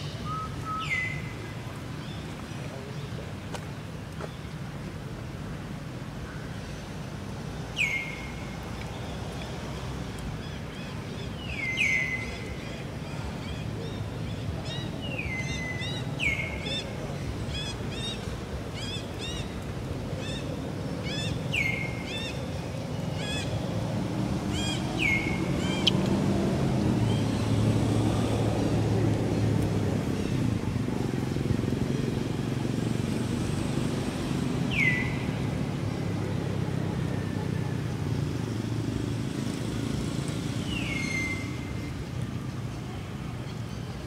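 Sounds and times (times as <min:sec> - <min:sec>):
bird calling: 0:00.0 - 0:01.4.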